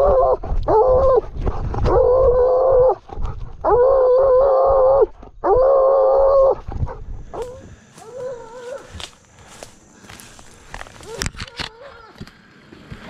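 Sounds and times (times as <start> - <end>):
dog baying: 3.6 - 9.0, 11.0 - 12.2.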